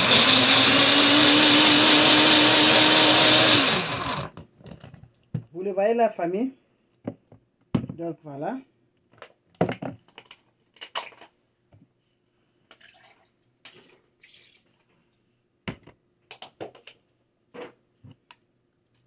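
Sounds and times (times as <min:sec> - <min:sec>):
liquid pouring: 0:12.8 - 0:14.8.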